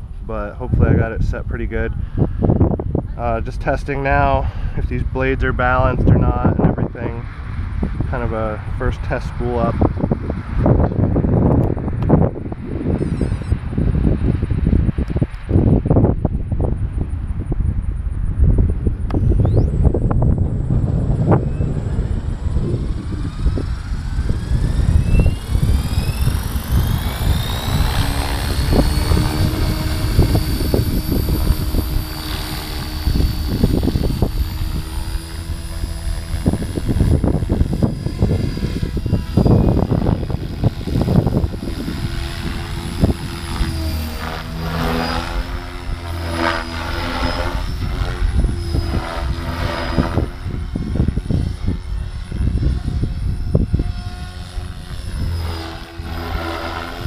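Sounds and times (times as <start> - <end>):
wind buffeting microphone: 0.0 - 57.0
rc helicopter motor whine: 0.8 - 57.0
rotor blades whooshing: 18.5 - 57.0.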